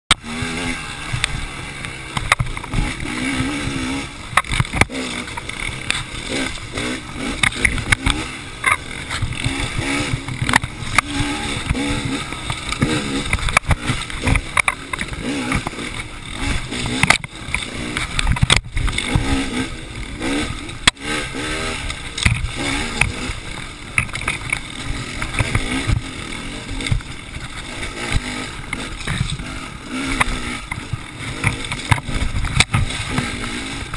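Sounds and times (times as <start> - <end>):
bike hitting bumps: 0.1 - 33.9
dirt bike engine revving: 0.1 - 33.9.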